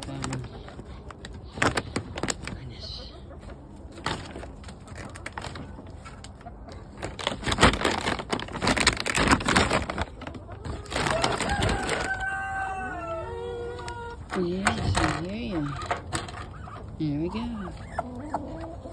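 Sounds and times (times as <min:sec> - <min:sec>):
plastic bags rustling: 0:00.0 - 0:02.7, 0:03.9 - 0:12.7, 0:13.7 - 0:16.5
chicken calling: 0:10.0 - 0:18.9.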